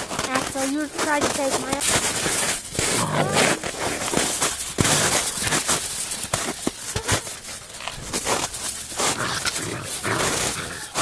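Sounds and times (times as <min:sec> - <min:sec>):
snow crunching under paws: 0:00.0 - 0:11.0.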